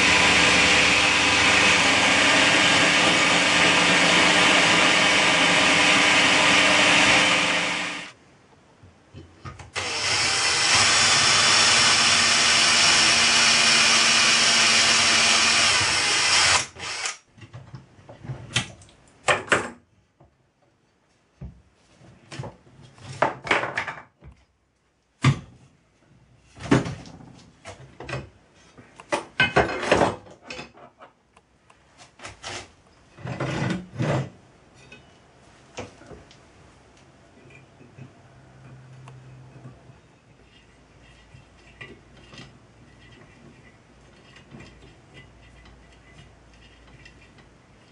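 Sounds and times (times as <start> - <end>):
electric drill running: 0.0 - 8.1, 9.8 - 17.2.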